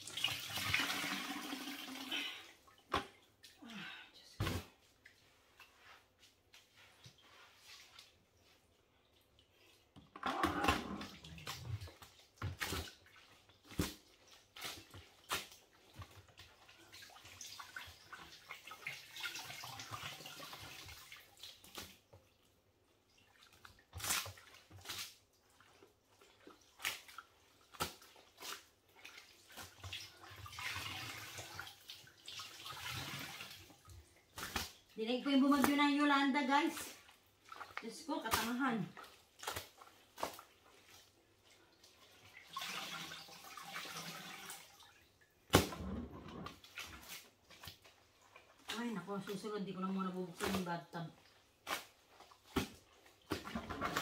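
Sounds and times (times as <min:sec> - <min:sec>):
water pouring into bucket: 0:00.0 - 0:02.8, 0:16.5 - 0:21.7, 0:28.6 - 0:34.0, 0:42.2 - 0:47.4, 0:53.3 - 0:54.0
wet cloth splats: 0:23.7 - 0:25.2, 0:26.6 - 0:30.1, 0:34.3 - 0:36.2, 0:36.8 - 0:40.6, 0:45.5 - 0:45.8, 0:50.3 - 0:54.0.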